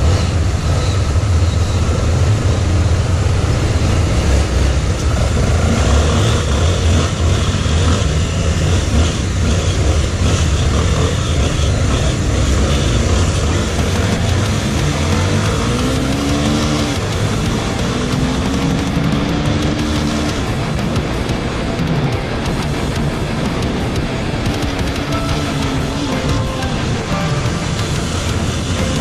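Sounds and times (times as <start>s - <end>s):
vehicle engine rumbling: 0.0s - 29.0s.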